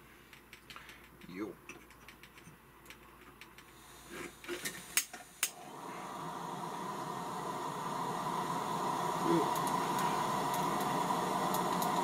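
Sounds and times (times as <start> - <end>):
gas hissing: 3.6 - 12.0
gas lantern ignition clicks: 4.5 - 5.6, 8.8 - 12.0.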